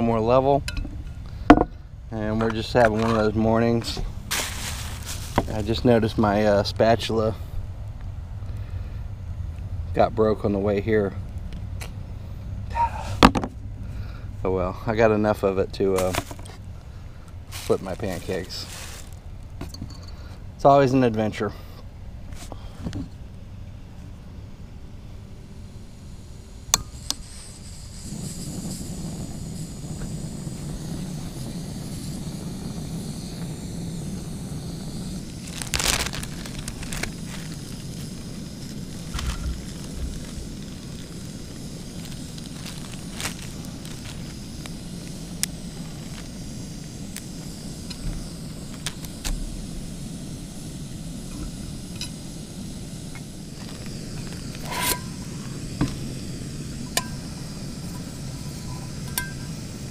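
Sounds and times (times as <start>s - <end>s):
stove burner rushing: 0.0s - 7.4s, 25.3s - 59.9s
sausages frying in a pan: 25.6s - 59.9s.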